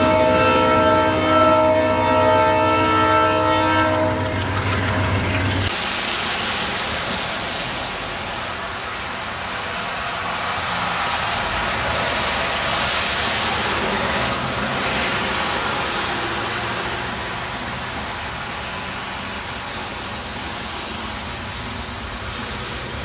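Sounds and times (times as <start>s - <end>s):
tyre hiss on wet road: 5.7s - 23.0s.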